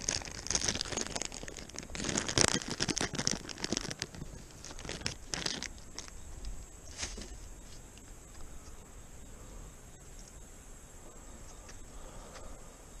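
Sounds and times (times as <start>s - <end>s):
plastic bag crinkling: 0.0s - 6.2s.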